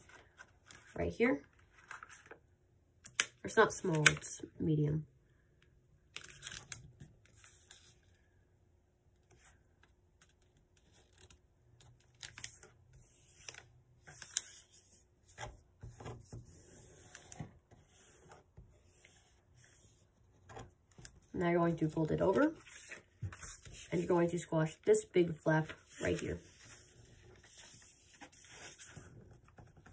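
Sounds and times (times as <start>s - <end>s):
paper crinkling and rustling: 25.6s - 29.9s.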